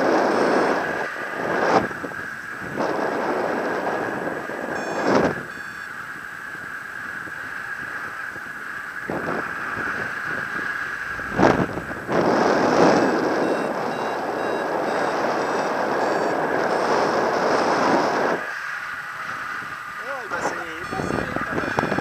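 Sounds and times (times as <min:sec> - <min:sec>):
wind rushing over microphone: 0:00.0 - 0:22.0
short variometer beeps: 0:04.7 - 0:05.9, 0:13.0 - 0:17.1, 0:19.8 - 0:22.0.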